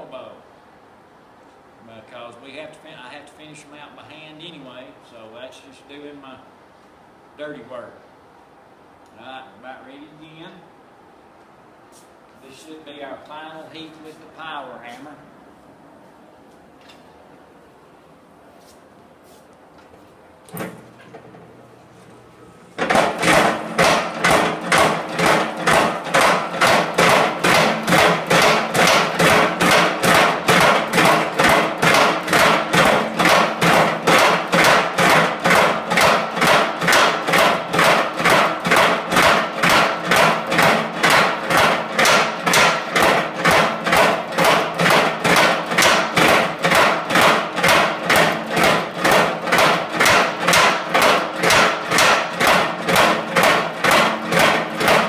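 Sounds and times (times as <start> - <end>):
power hammer pounding hot steel: 22.8 - 55.0.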